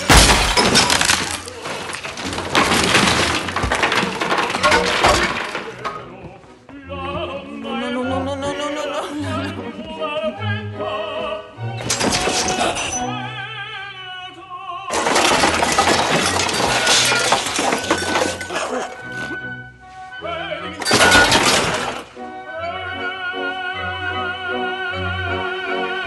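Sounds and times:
crash of breaking: 0.0 - 6.2, 11.8 - 13.1, 14.9 - 19.0, 20.8 - 22.2
smashing and shattering: 0.0 - 6.3, 11.8 - 13.1, 14.9 - 19.1, 20.8 - 22.2
operatic singing with orchestra: 5.6 - 15.0, 20.0 - 20.9, 21.8 - 26.0.

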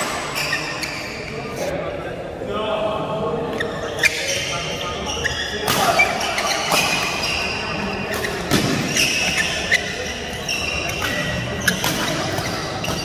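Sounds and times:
shoes squeaking on court: 0.0 - 1.7, 3.5 - 13.0
racket hitting shuttlecock: 8.1 - 9.4.

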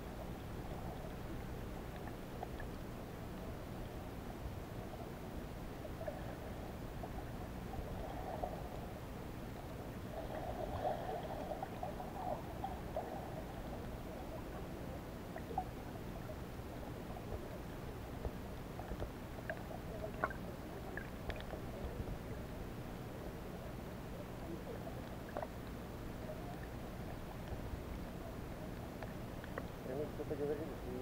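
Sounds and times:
underwater low hum: 0.0 - 31.0
faint clicks: 18.2 - 22.0, 24.8 - 29.8.

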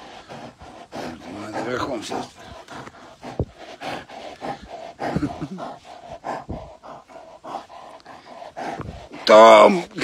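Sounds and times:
bear panting and snuffling: 0.0 - 10.0.

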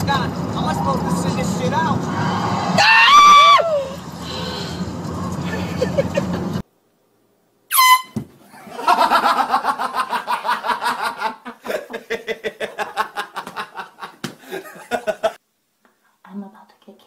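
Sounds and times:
people laughing: 5.5 - 6.6, 8.5 - 15.4
air horn blast: 7.7 - 8.2.

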